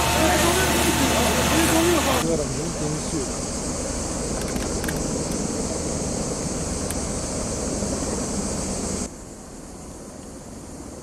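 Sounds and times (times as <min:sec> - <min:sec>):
high hiss: 0:00.0 - 0:11.0.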